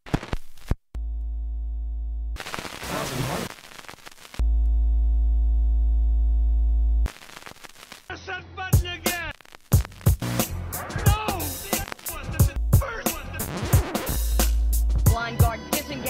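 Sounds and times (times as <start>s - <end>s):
low electronic hum: 1.0s - 2.4s, 4.4s - 7.1s.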